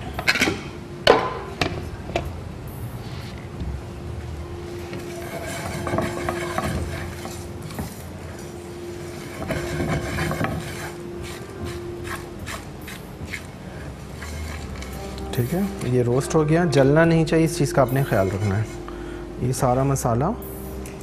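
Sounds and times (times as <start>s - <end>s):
spatula scraping spices in pan: 5.0s - 8.0s, 9.0s - 13.5s, 14.1s - 16.0s, 17.9s - 18.9s.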